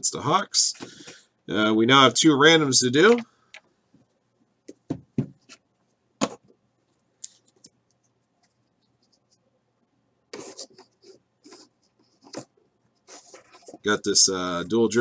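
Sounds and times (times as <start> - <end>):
scraping and rustling: 10.4 - 14.3.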